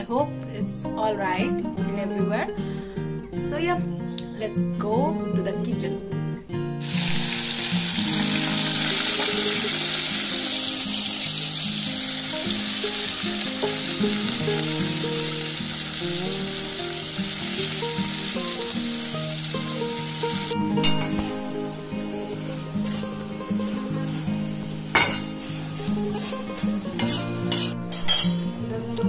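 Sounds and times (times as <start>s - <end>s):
background music: 0.0s - 29.0s
potato sizzling in hot oil: 6.8s - 28.2s.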